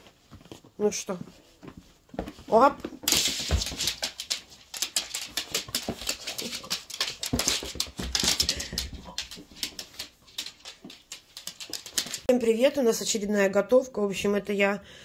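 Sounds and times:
dog claws clicking on floor: 2.9 - 12.3.

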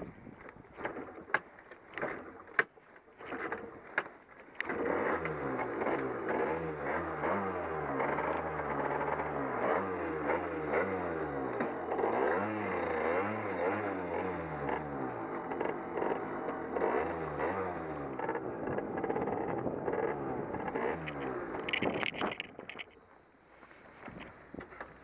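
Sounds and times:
sharp scraping clicks: 0.4 - 7.0, 18.2 - 23.0
moped engine revving: 4.6 - 22.8.

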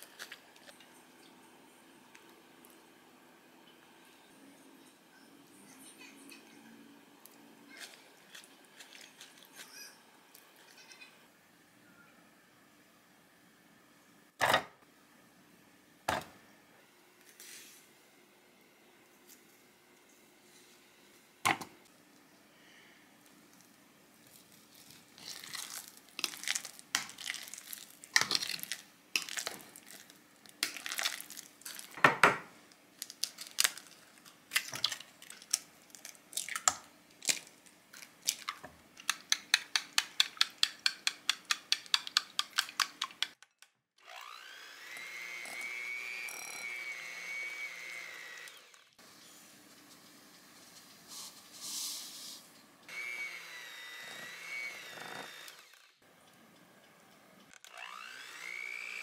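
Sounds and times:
eggs cracked on a bowl: 38.3 - 43.4
electric hand mixer whine: 44.0 - 49.4, 52.9 - 56.0, 57.6 - 59.0.

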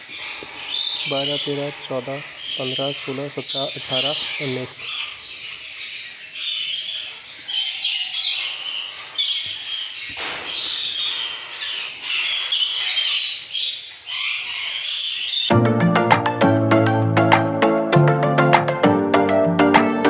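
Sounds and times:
parakeet chicks squawking: 0.0 - 15.5.

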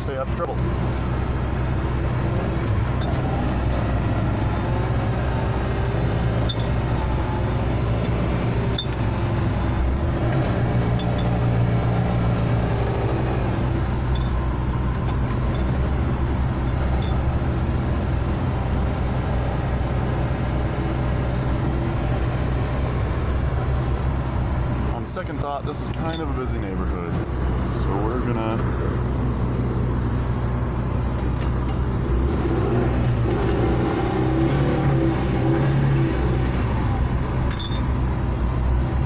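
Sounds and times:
road noise inside cabin: 0.0 - 39.0
light clinks: 37.5 - 38.0.

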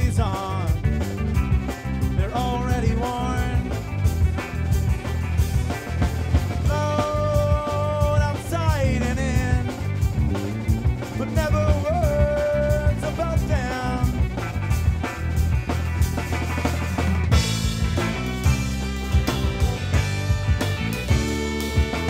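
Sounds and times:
bass: 0.0 - 22.0
drum kit: 0.0 - 22.0
guitar: 0.0 - 22.0.

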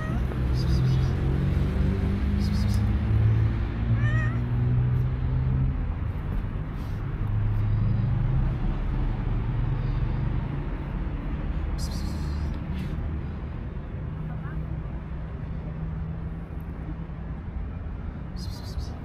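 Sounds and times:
cat meowing: 0.0 - 0.4, 4.0 - 4.6
vehicle engine hum: 0.0 - 19.0.

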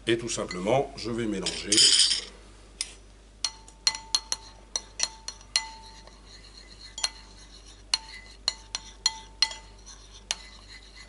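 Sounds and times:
cutlery clinking on porcelain plate: 3.4 - 6.2, 6.9 - 7.3, 8.0 - 10.6.

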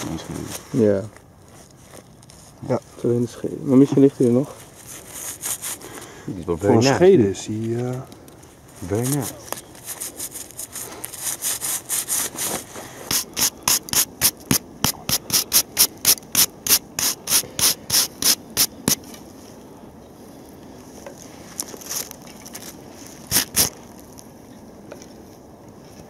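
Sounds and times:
gloved hand scraping soil off metal: 4.7 - 6.0, 8.8 - 19.3, 23.2 - 23.9.

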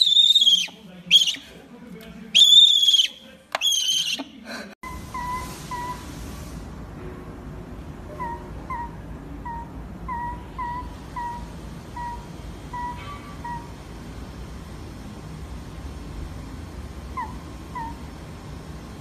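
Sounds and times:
owl whistling screeches: 0.0 - 1.5, 2.4 - 6.1, 8.1 - 13.8, 17.1 - 18.1
soft high peeps: 0.0 - 1.5, 2.4 - 6.1, 8.1 - 13.8, 17.1 - 18.1.

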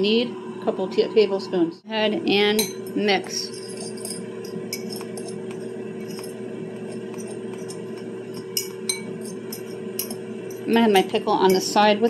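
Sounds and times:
steady hum: 0.0 - 12.0
fork clinking against ceramic bowl: 2.6 - 11.7.

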